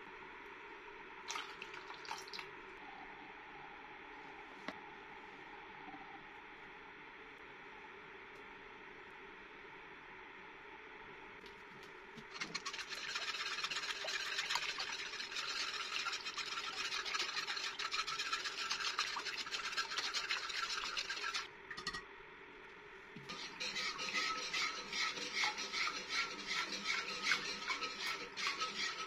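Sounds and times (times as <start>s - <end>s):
wire whisk rasping against pot: 12.2s - 21.5s, 23.2s - 29.0s.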